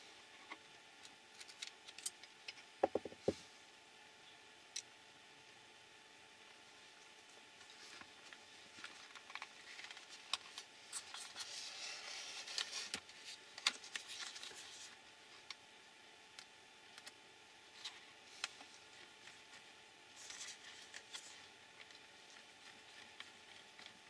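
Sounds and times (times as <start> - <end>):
plastic rustling and knocks: 2.8 - 3.4.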